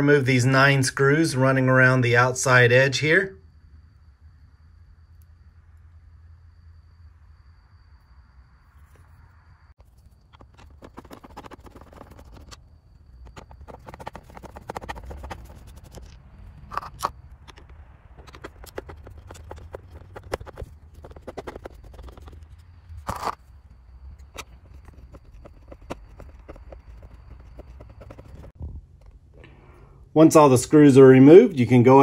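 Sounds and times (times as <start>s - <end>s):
screwdriver clicking and scraping: 10.0s - 23.4s, 24.2s - 29.1s.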